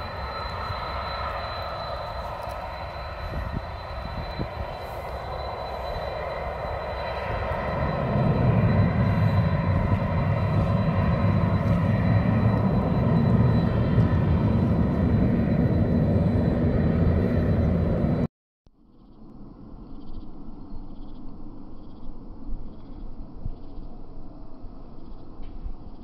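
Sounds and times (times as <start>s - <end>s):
deep engine rumble: 0.0s - 18.3s
jet engines rushing and whining: 0.0s - 18.3s.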